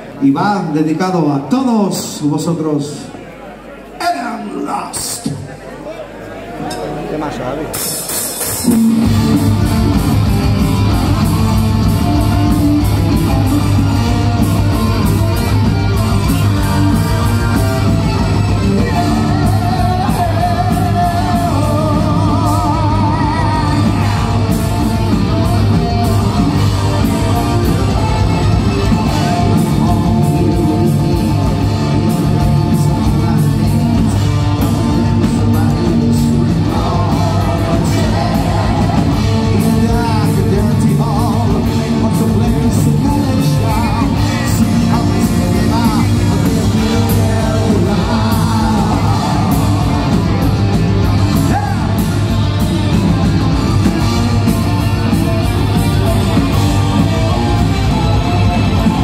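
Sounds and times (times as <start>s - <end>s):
keyboards: 0.0s - 59.0s
distorted electric guitars: 6.6s - 59.0s
drum kit beat: 7.8s - 59.0s
person singing: 16.4s - 52.4s.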